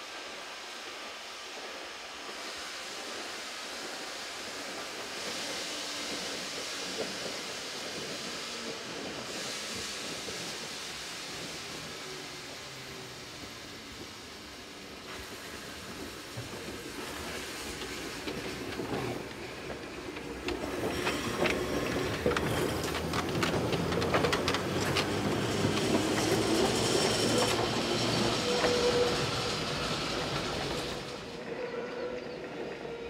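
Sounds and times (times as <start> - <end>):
tram wheels clicking over rail joints: 1.7 - 33.0
wheel squeal: 21.1 - 33.0.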